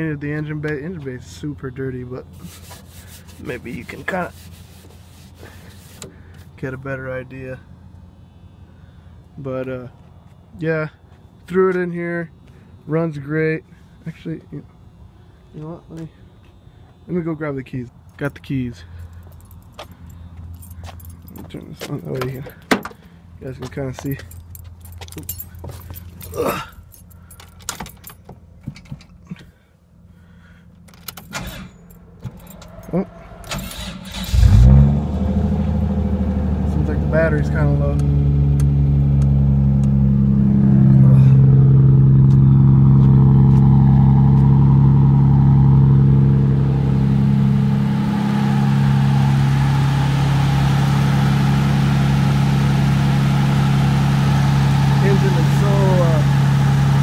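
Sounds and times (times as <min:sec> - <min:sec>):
car keys jangling: 0:18.9 - 0:23.2, 0:24.0 - 0:29.5, 0:30.8 - 0:34.7
car engine idling: 0:31.8 - 0:57.0.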